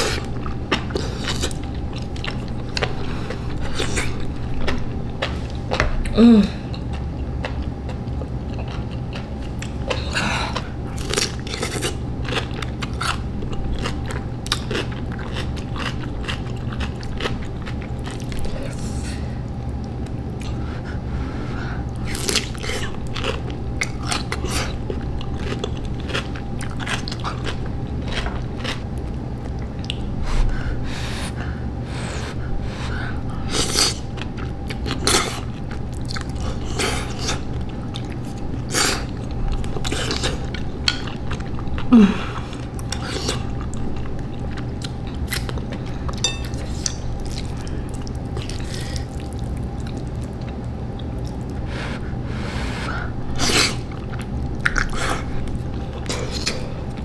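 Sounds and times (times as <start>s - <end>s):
wet chewing: 0.0s - 18.8s, 21.8s - 30.6s, 33.3s - 51.9s, 53.2s - 57.0s
steady low hum: 0.0s - 57.0s
person humming: 6.1s - 6.7s, 41.9s - 42.5s.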